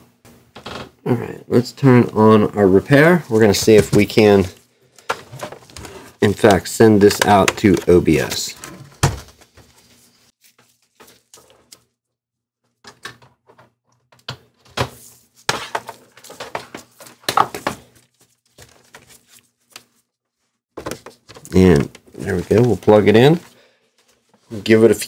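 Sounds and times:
cable plugs clicking and knocking: 0:06.3 - 0:08.1.

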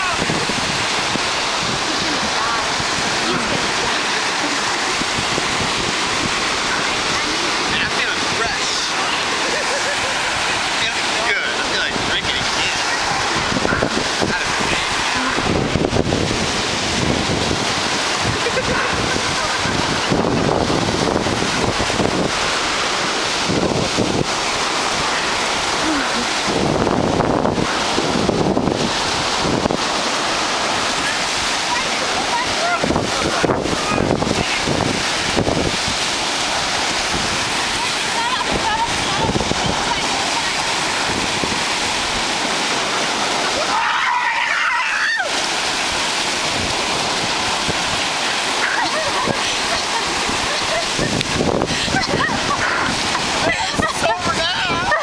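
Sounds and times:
wind buffeting microphone: 0:00.0 - 0:43.7, 0:45.2 - 0:55.0
ocean surf breaking: 0:00.0 - 0:55.0
person shrieking: 0:43.6 - 0:45.3.

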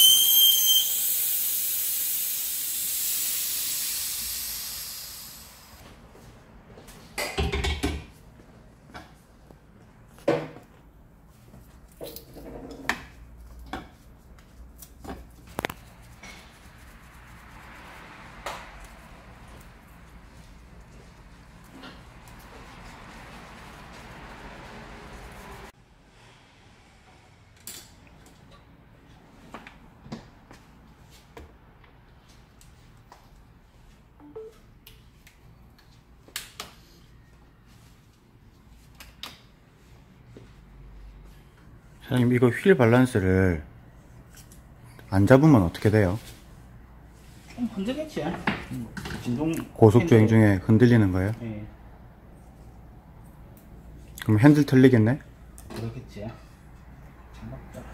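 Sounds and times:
short electronic beeps: 0:00.0 - 0:01.0.

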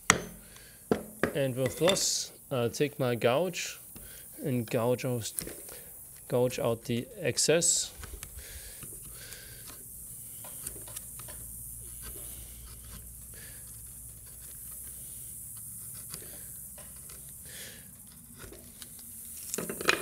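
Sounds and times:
low steady hum: 0:00.0 - 0:19.6
carving gouge slicing wood: 0:11.9 - 0:17.4
wood chips clicking: 0:13.0 - 0:20.0.

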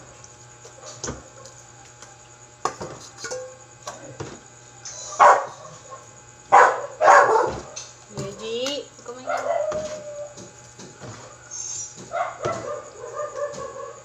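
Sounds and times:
dog barking: 0:05.1 - 0:07.8, 0:09.2 - 0:10.3, 0:12.0 - 0:14.0.

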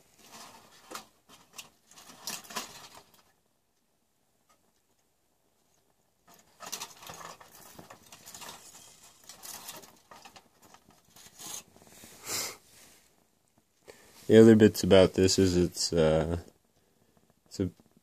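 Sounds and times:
foil rustling and crinkling: 0:00.0 - 0:03.4, 0:06.3 - 0:12.2.

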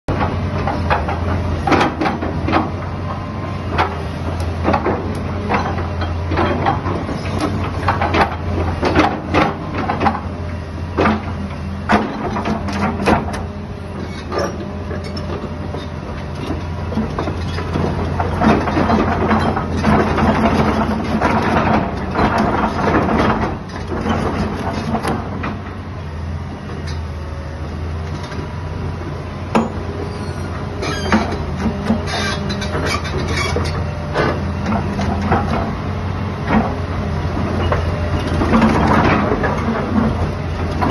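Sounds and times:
excavator diesel engine running: 0:00.1 - 0:40.9
metallic clanks and knocks: 0:11.0 - 0:25.6, 0:29.5 - 0:29.9.

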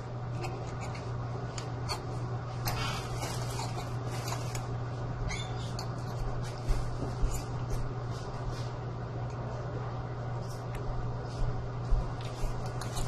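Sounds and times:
steady low hum: 0:00.0 - 0:13.0
fork scraping ceramic plate: 0:02.7 - 0:04.6.

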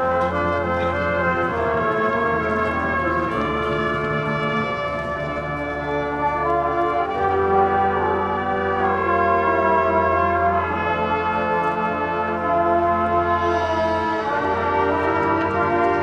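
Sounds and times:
marching band brass chords: 0:00.0 - 0:16.0.

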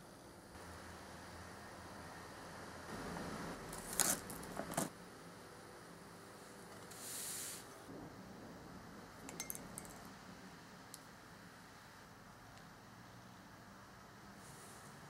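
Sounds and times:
short soft hiss: 0:06.9 - 0:07.7
light clinks: 0:09.3 - 0:10.0.

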